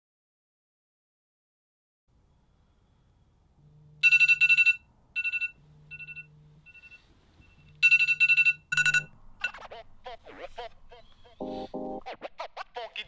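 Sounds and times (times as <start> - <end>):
phone alarm beeps: 4.0 - 9.6, 11.4 - 12.0.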